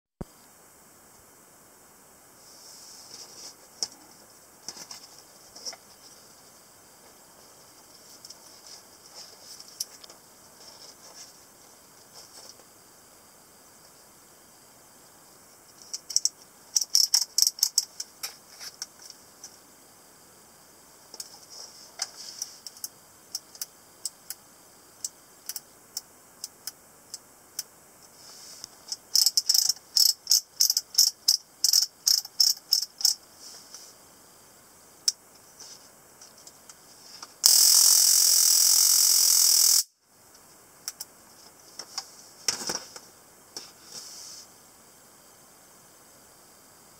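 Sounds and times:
stun gun electric crackle: 37.4 - 39.9.

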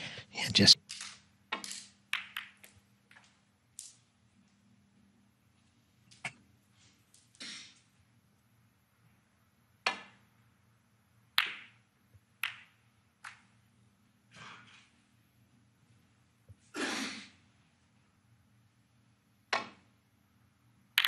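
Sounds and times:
cue striking ball click: 2.2 - 2.6
snooker balls knocking together: 2.2 - 3.2, 11.4 - 11.8, 12.4 - 13.4.

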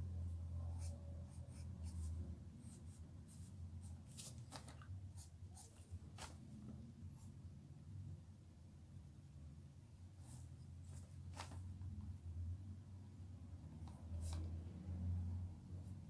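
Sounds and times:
pencil scratching on paper: 0.7 - 4.5.

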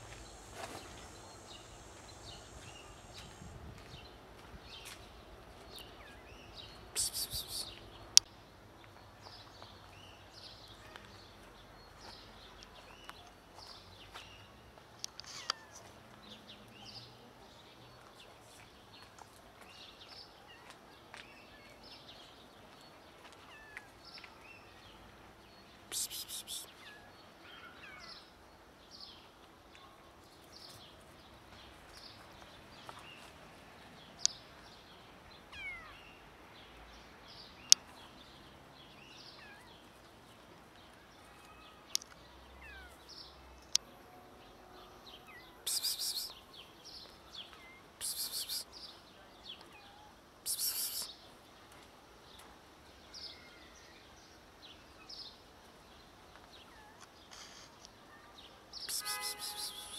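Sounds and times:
bird chirps: 6.0 - 7.8, 25.9 - 27.0, 45.3 - 46.6, 47.5 - 49.0, 50.4 - 51.2, 58.8 - 59.9
brief hissing bursts: 7.0 - 7.8, 25.9 - 26.7, 58.8 - 59.9.

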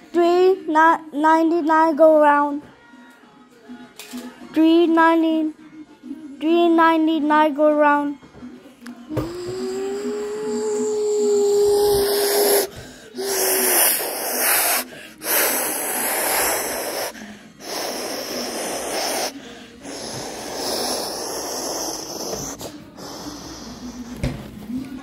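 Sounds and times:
child imitating jet engine: 9.2 - 23.9.

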